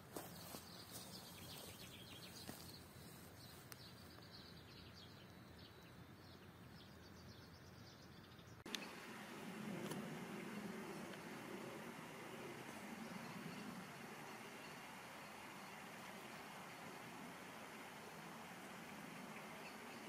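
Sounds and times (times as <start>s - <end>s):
faint bird chirps: 10.4s - 20.0s.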